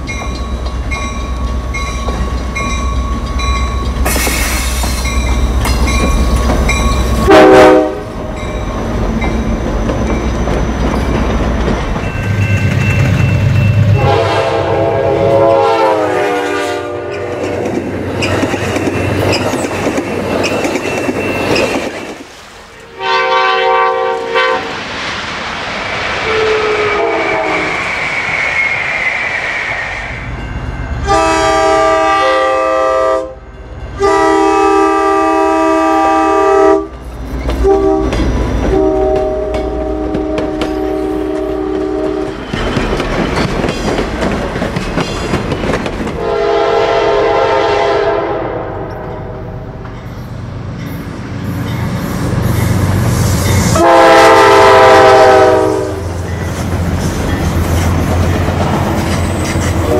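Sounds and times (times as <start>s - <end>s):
train wheels clacking over rails: 0.0s - 7.3s, 8.3s - 14.1s, 17.1s - 22.4s, 37.0s - 46.4s, 54.6s - 59.9s
diesel locomotive engine rumble: 0.0s - 59.9s
locomotive air horn: 7.2s - 8.1s, 13.9s - 17.6s, 22.8s - 24.8s, 26.3s - 27.8s, 31.0s - 33.4s, 34.0s - 36.9s, 37.6s - 38.1s, 38.7s - 42.3s, 46.2s - 49.4s, 53.7s - 56.1s.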